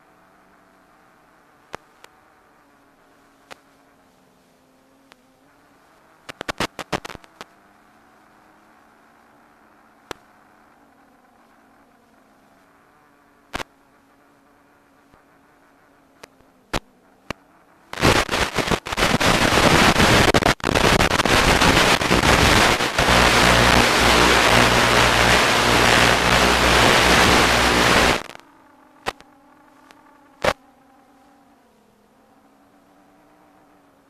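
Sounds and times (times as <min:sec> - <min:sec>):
low buzz: 0:00.0 - 0:30.8
faint hum: 0:00.0 - 0:34.0
loud radio static hiss: 0:05.6 - 0:07.5, 0:13.5 - 0:28.4, 0:29.0 - 0:30.6
sharp clicks: 0:06.3 - 0:07.5, 0:16.2 - 0:28.4, 0:29.0 - 0:30.6.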